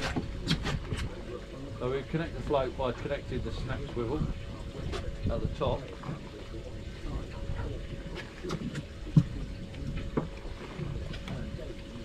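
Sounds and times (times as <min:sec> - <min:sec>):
water slapping boat hull: 0:00.0 - 0:12.0
wind on microphone: 0:00.0 - 0:12.0.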